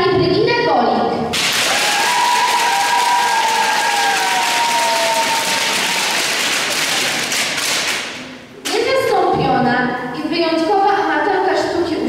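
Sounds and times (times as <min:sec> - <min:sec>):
audience applause: 0:01.4 - 0:08.3.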